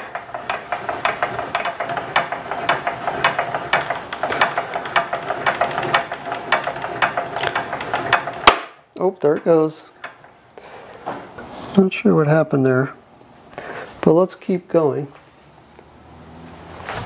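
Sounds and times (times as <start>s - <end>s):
hand crank clicking: 0.0s - 8.6s.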